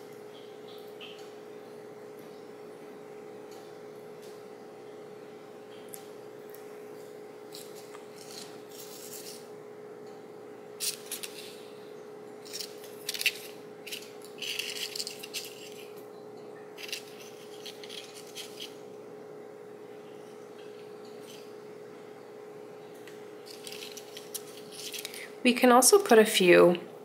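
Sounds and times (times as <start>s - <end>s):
steady hum: 0.0s - 27.0s
paper rustling and scraping: 7.5s - 9.4s, 10.8s - 11.6s, 12.5s - 16.0s, 16.8s - 18.8s, 23.5s - 25.2s.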